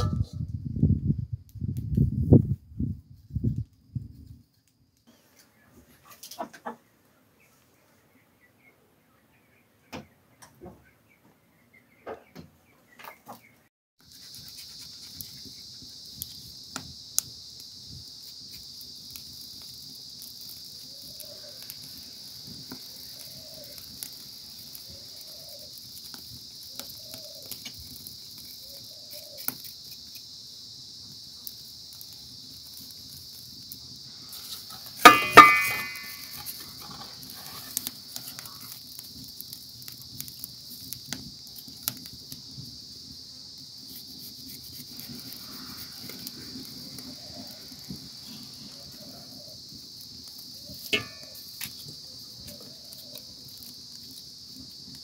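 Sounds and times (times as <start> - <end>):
knife scraping charred skin: 14.0 - 15.6, 28.2 - 30.3, 34.3 - 39.0, 43.8 - 45.9
shrill insect chorus: 14.0 - 55.0.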